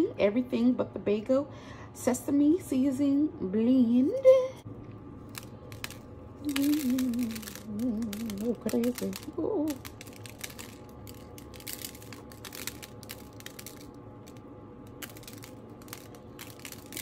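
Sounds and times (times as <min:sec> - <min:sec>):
seeds rattling in glass shaker: 0:05.3 - 0:17.0.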